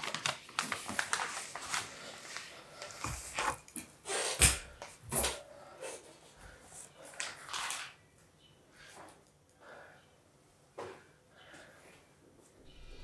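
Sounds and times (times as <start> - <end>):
paper and clothing rustling: 0.0 - 3.6, 7.0 - 8.0.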